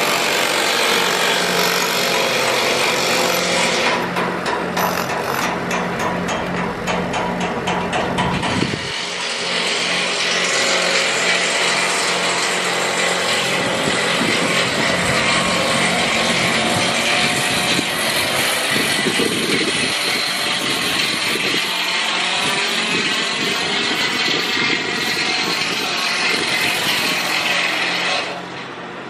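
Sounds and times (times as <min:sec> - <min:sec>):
steady engine hum: 0:00.0 - 0:27.7
rotary hammer chipping concrete: 0:00.0 - 0:28.4.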